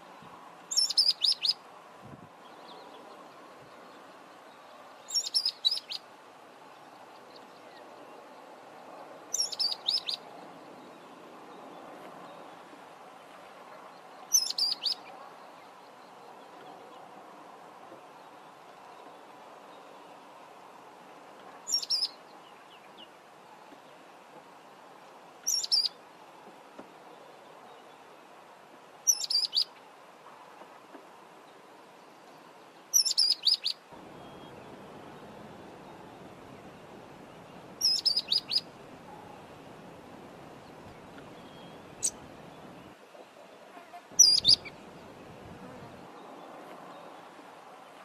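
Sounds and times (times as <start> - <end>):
bird whistled calls: 0.7 - 1.6, 14.3 - 15.0, 25.5 - 25.9, 33.0 - 34.6, 37.8 - 38.6, 44.2 - 44.7
bird whistling call: 37.8 - 38.7, 44.2 - 44.7.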